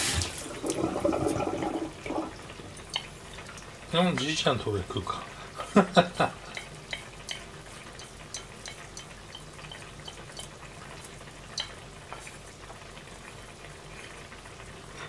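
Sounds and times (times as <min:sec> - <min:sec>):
porcelain dishes clicking: 0:06.5 - 0:10.5.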